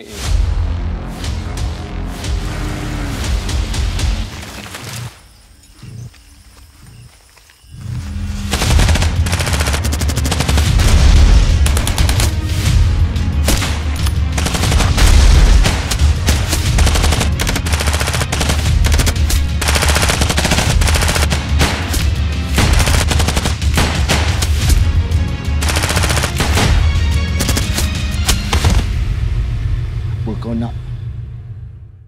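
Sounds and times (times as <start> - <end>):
action music with heavy bass: 0.0 - 5.1, 8.1 - 30.6
rapid gunfire: 8.5 - 12.5, 13.5 - 24.6, 25.6 - 28.9.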